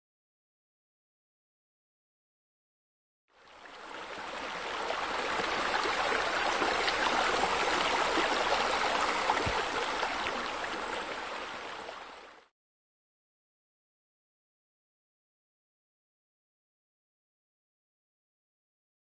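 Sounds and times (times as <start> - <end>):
flowing water: 3.3 - 12.5.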